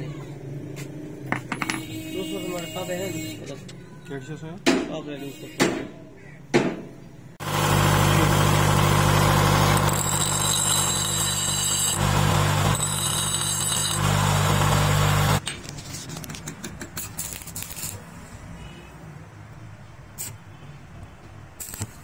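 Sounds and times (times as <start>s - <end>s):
bench grinder humming: 7.4s - 15.4s
wrench grinding against wheel: 9.0s - 15.4s, 16.6s - 18.0s
welding rod clicking and crackling: 21.6s - 22.0s.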